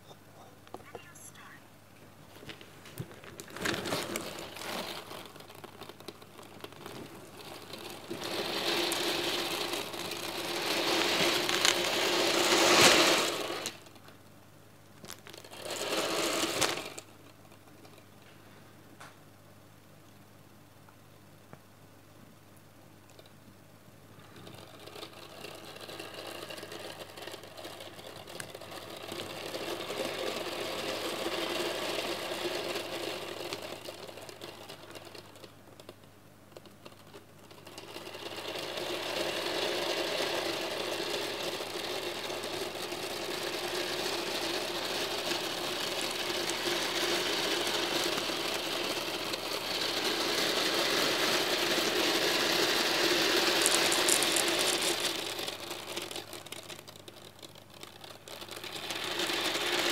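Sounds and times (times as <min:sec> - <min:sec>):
steel balls rattling: 0:03.2 - 0:14.0, 0:15.0 - 0:18.0, 0:24.2 - 0:59.9.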